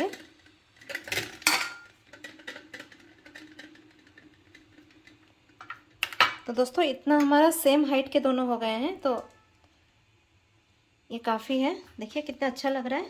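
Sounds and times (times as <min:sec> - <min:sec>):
utensil clinking on crockery: 0:00.0 - 0:06.5
faint steady hum: 0:00.0 - 0:13.0.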